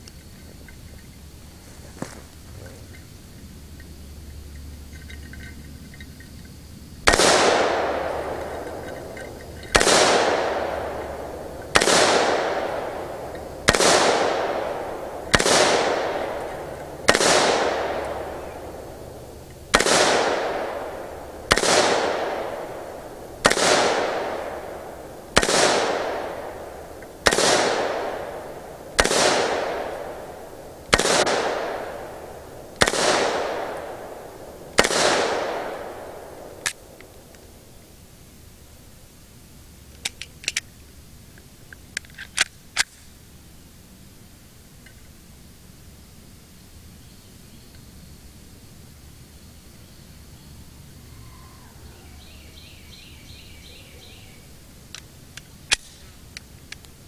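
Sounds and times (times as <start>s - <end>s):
gunshots with long echo: 7.0s - 37.7s.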